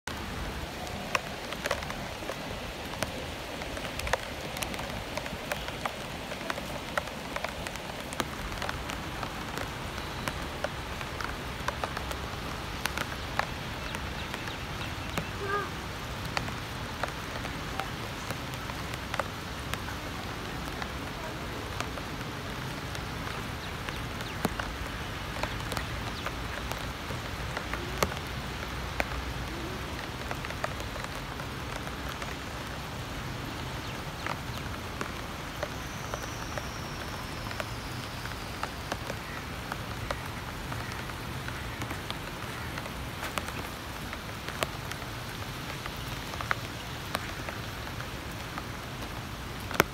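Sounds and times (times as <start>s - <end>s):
heavy rain falling: 0.0s - 49.9s
raindrops ticking close by: 0.0s - 49.9s.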